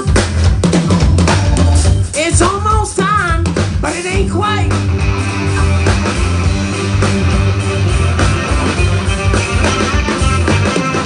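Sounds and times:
bass line: 0:00.0 - 0:11.0
drums: 0:00.0 - 0:11.0
electric guitar: 0:03.7 - 0:11.0.

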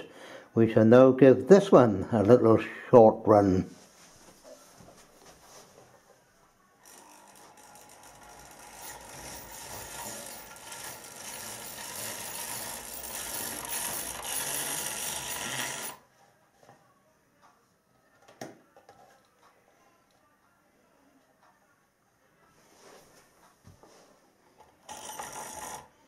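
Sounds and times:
model train motor whirring: 0:06.8 - 0:16.0, 0:24.9 - 0:25.9.

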